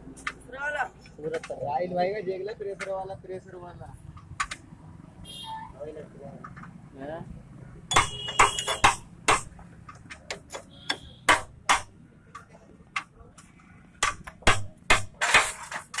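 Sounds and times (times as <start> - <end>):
sharp metal clicks and knocks: 4.1 - 4.7, 7.9 - 16.0.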